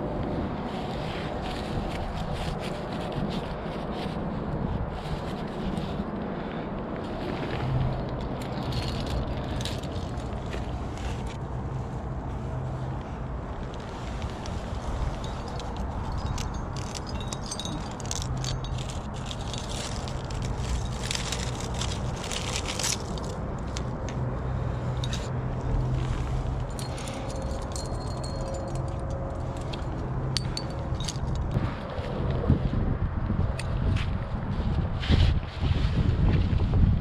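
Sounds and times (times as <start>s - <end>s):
low wind rumble on microphone: 0.0s - 37.0s
metal climbing gear clinking: 7.8s - 11.4s, 14.2s - 31.6s.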